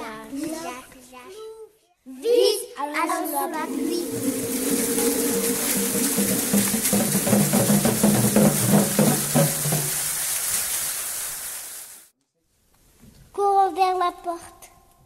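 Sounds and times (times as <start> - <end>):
children playing percussion: 3.5 - 10.3.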